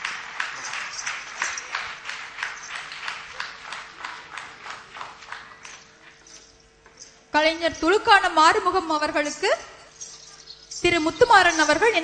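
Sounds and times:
audience clapping in rhythm: 0.0 - 6.3.

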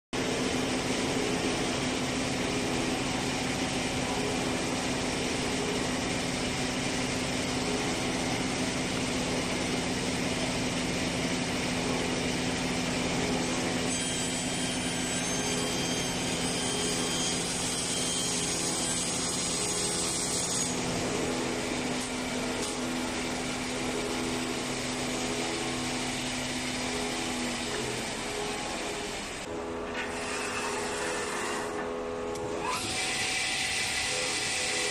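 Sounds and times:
high-pitched whine: 0.2 - 34.9
panel saw cutting wood: 13.6 - 23.6, 24.2 - 34.9.

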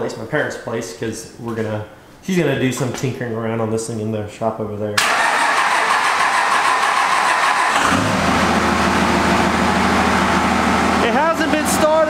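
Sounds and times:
diesel engine starting and idling: 5.0 - 12.0.

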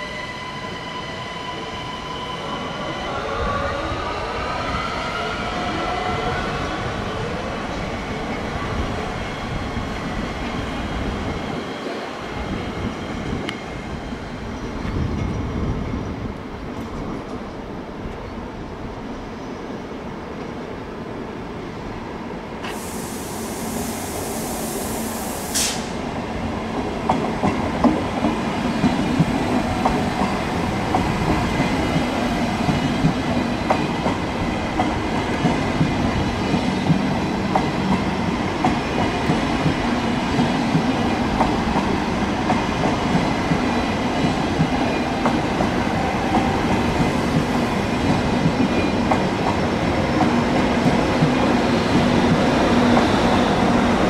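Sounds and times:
train wheels rumbling on rail: 0.0 - 20.7, 22.5 - 54.0
brief hiss: 22.6 - 26.0.

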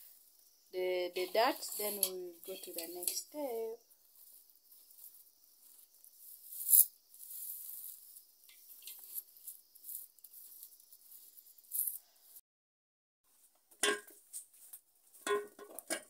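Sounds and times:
dry leaves rustling and crackling: 1.2 - 12.0.

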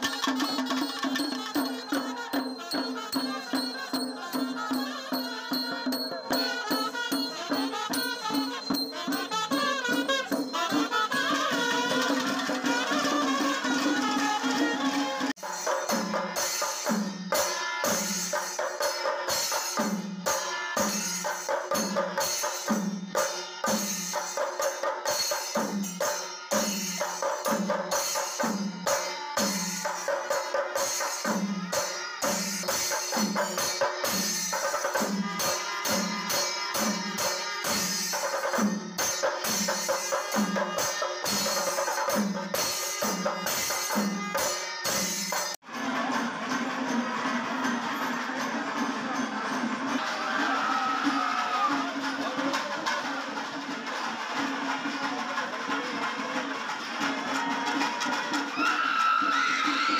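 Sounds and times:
hand cymbals clashing: 0.0 - 55.0
drums beaten with sticks: 0.0 - 59.9
wind instruments holding long notes: 1.5 - 15.3.

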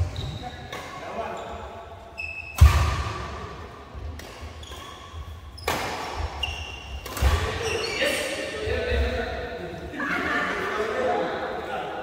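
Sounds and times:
court shoes squeaking: 0.0 - 3.0, 4.1 - 8.6
rackets hitting shuttlecock: 2.5 - 3.3, 4.0 - 4.9, 5.6 - 7.6.

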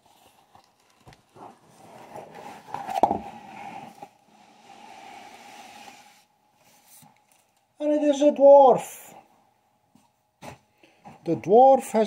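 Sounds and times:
cardboard and foam rustling: 0.0 - 7.5.

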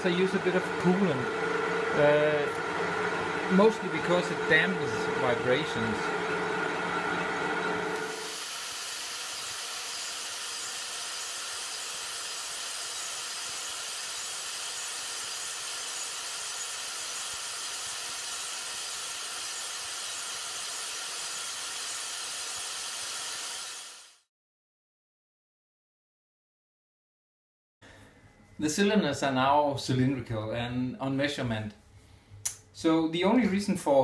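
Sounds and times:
grinder stone grinding metal: 8.0 - 24.1.

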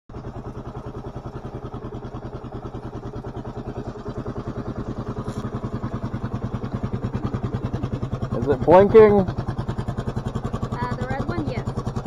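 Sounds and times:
motorcycle engine idling: 0.1 - 12.0.

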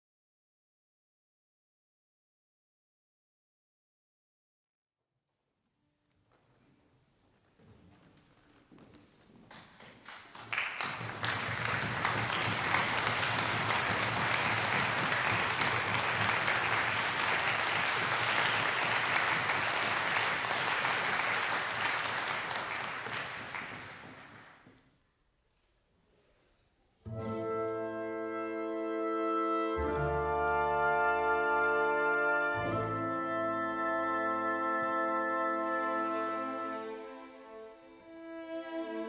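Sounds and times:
audience applauding: 9.5 - 24.7.

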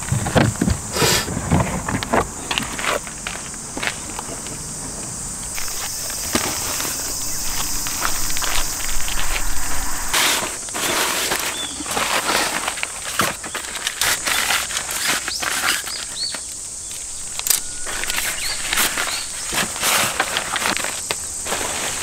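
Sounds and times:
high insect drone: 0.0 - 22.0
bird chirps: 5.6 - 10.2, 17.1 - 19.5.

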